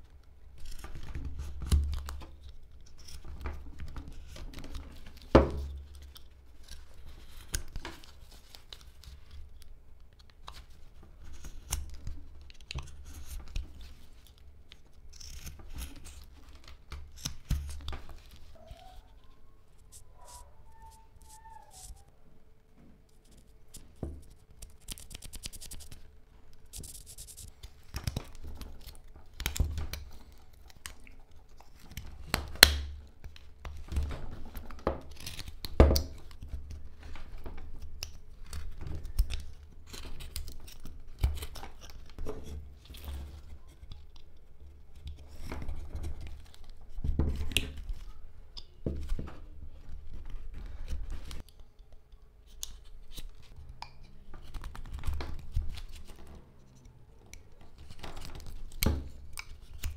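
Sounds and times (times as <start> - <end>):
knife shaving wood: 11.2 - 18.6, 34.5 - 45.5.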